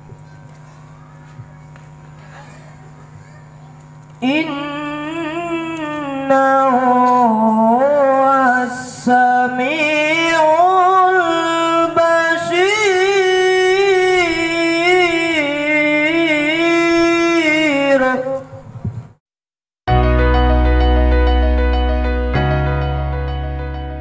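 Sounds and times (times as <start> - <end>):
boy chanting through loudspeaker: 0.0 - 18.7
steady low hum: 0.0 - 19.2.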